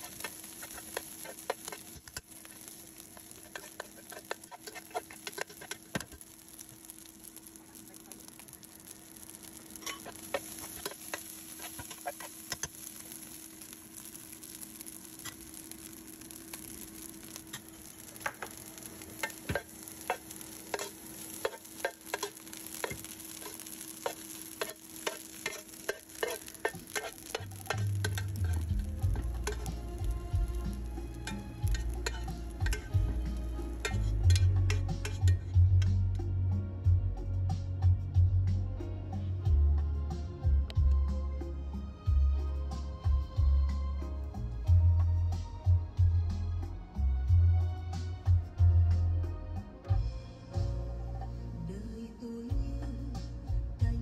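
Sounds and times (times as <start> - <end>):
metal spoon scraping pan: 0.0 - 6.3, 9.8 - 12.8, 19.2 - 30.1, 30.8 - 35.5
rice sizzling in a pan: 0.0 - 37.0, 37.8 - 48.4
low music: 18.3 - 54.0.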